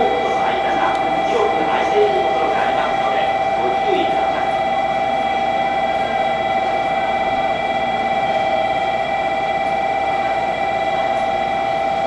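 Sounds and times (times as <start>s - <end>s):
train equipment electrical hum: 0.0s - 12.0s.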